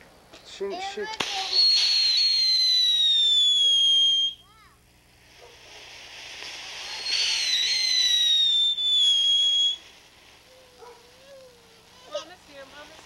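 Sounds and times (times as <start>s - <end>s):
firework sparks hissing: 0.8s - 13.0s
shrill firework whistle: 1.2s - 4.7s, 6.4s - 12.2s.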